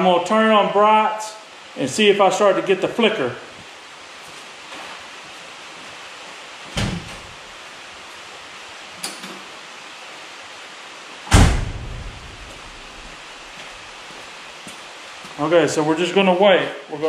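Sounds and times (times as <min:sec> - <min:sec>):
steady hiss: 0:00.0 - 0:17.0
heavy thump with deep ring: 0:11.3 - 0:12.3.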